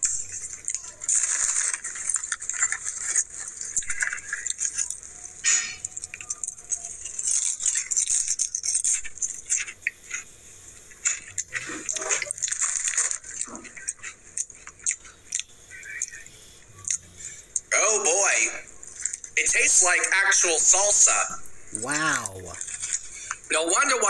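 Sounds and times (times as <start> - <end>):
chip bag crinkling: 0.0 - 10.2, 10.8 - 15.2, 22.5 - 24.0
potato chips crunching: 0.0 - 10.2, 11.0 - 16.0.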